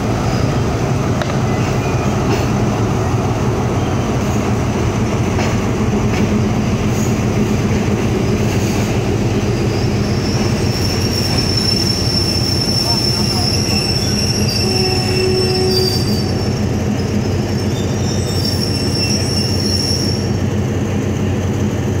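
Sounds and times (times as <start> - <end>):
train rumble and hum: 0.0 - 22.0
steel wheel squeal: 9.6 - 20.4.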